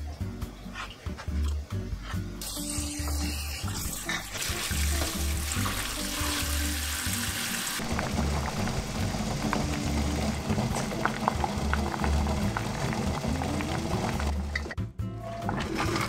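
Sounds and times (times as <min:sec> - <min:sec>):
background music: 0:00.0 - 0:16.0
tap water running into colander: 0:02.4 - 0:14.7.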